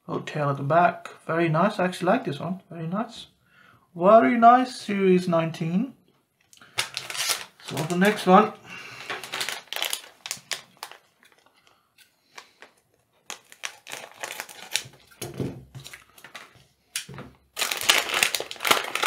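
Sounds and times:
plastic bag crinkling: 0:06.6 - 0:15.2, 0:15.8 - 0:16.6, 0:17.5 - 0:19.0
scissors cutting plastic: 0:13.3 - 0:15.2.

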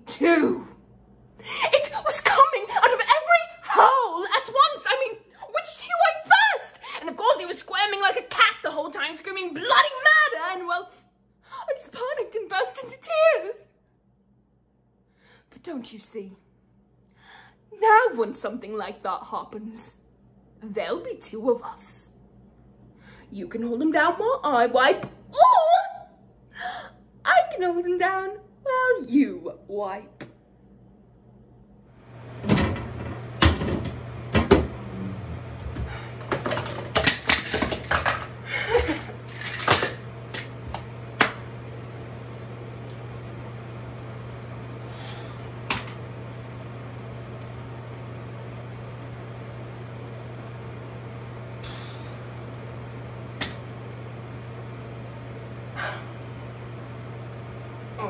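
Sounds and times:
steady low hum: 0:00.0 - 0:58.0
toiletries clattering: 0:32.4 - 0:34.8, 0:35.6 - 0:41.4.

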